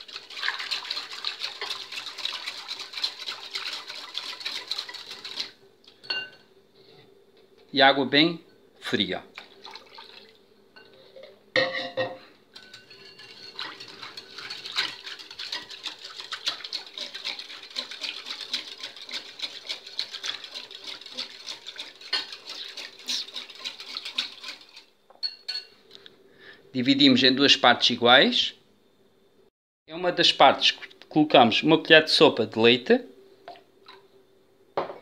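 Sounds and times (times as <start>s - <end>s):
whisk clinking against glass bowl: 0.3s - 5.5s, 12.6s - 25.7s.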